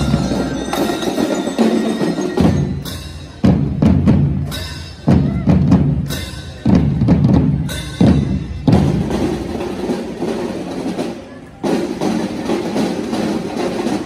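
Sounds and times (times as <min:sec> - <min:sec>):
bell lyres ringing: 0:00.0 - 0:03.8
marching drums: 0:00.0 - 0:14.0.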